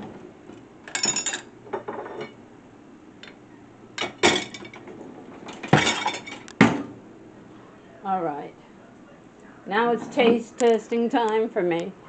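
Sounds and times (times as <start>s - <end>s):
dishes clinking in rack: 0.9s - 2.4s, 4.0s - 4.8s, 5.4s - 6.5s.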